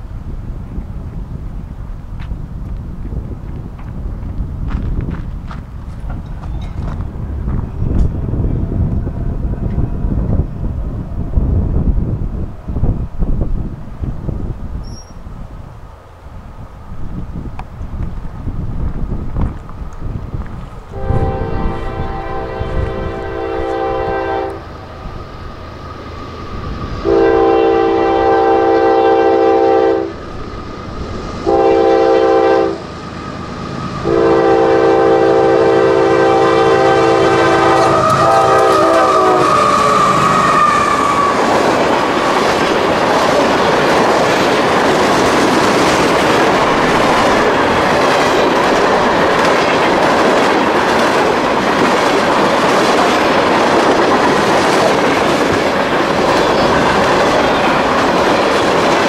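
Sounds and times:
freight cars rumbling and clacking: 2.0 - 15.1, 37.4 - 59.0
locomotive air horn blasts: 20.9 - 24.7, 27.0 - 30.2, 31.4 - 32.9, 34.0 - 41.0.

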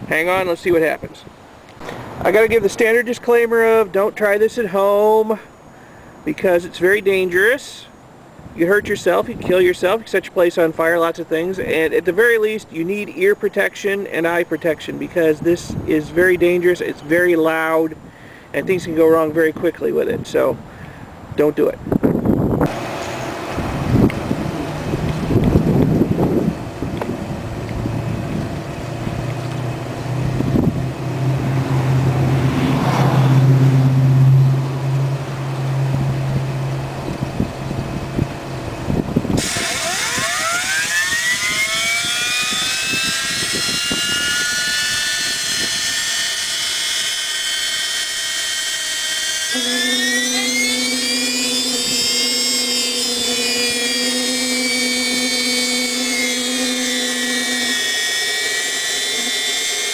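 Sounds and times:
low hum with rushing air: 0.0 - 4.1, 17.8 - 46.6
turbine high whine: 21.6 - 59.9.

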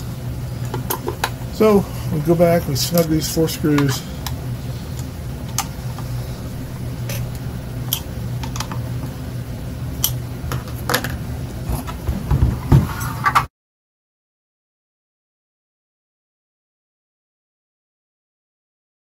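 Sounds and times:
low hum: 0.0 - 13.5.

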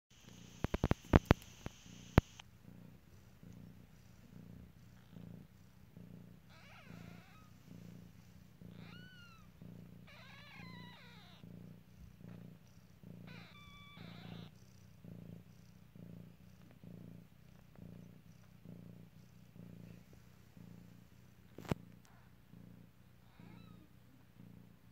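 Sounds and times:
cat purring: 0.1 - 24.9
sharp clicks: 0.3 - 2.4
kittens squeaking: 6.5 - 7.5, 8.7 - 9.5, 10.1 - 11.4, 13.3 - 14.5.

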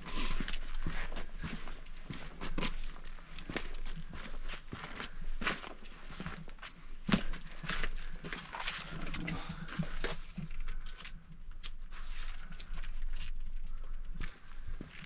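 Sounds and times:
footsteps crunching on gritty rock: 0.2 - 10.9, 13.7 - 15.0.

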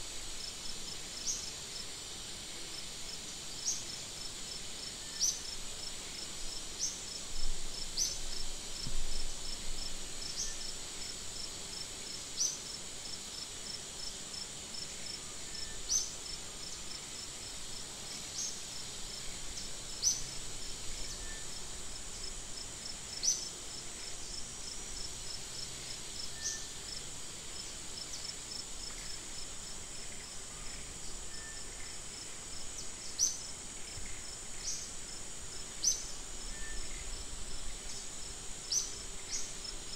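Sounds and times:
insects buzzing: 0.0 - 39.9
sharp high insect chirp: 38.6 - 39.6.

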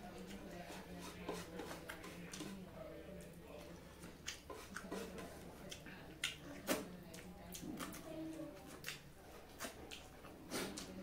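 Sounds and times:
chewing: 3.2 - 11.0.

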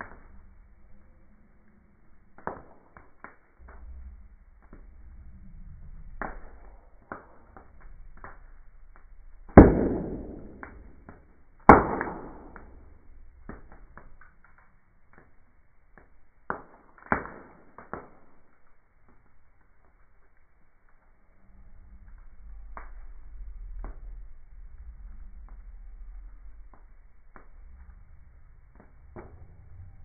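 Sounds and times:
loud fire pops: 0.0 - 1.1, 2.2 - 30.0
wood fire crackling: 0.0 - 30.0.

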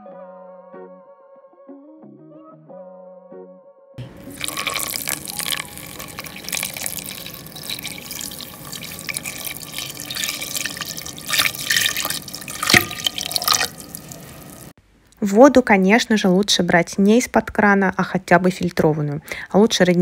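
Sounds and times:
water pouring into a metal pot: 4.1 - 14.7.

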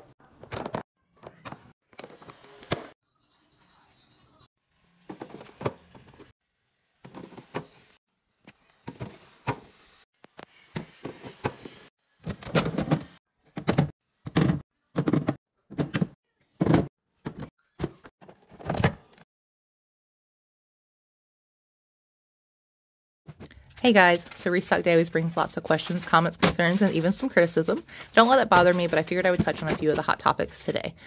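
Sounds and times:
plastic bins knocking and clunking: 0.4 - 2.1, 5.1 - 6.3, 7.0 - 7.8, 10.8 - 19.1, 25.3 - 30.7.

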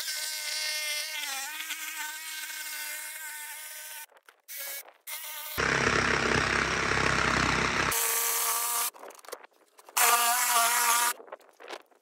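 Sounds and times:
electric jigsaw cutting wood: 5.6 - 8.9.

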